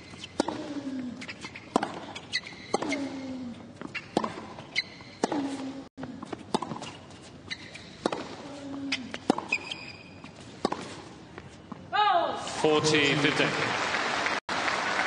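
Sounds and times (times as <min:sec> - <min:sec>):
racket hitting tennis ball: 0:00.0 - 0:11.5
shoes squeaking on court: 0:00.0 - 0:11.9.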